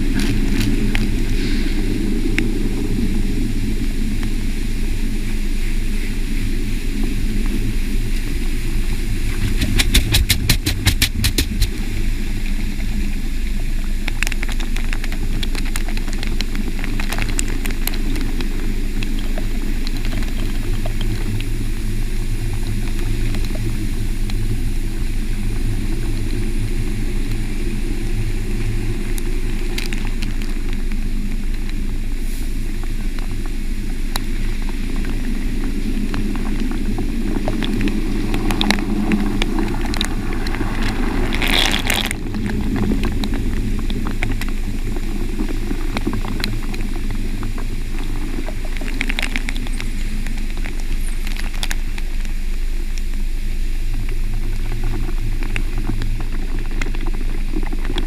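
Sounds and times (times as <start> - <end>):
car wash machine drone: 0.0 - 56.5
rotating brushes swishing: 9.3 - 11.9.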